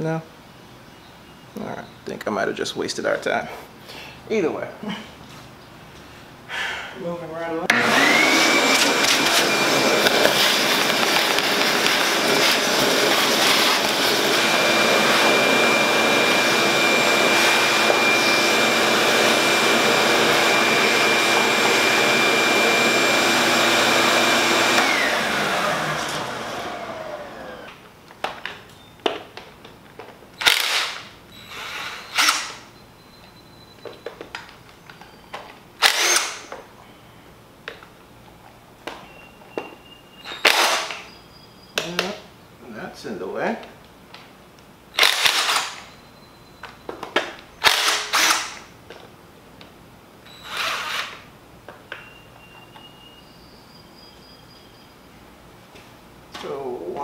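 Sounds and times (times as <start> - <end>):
shop vacuum running: 7.7 - 27.8.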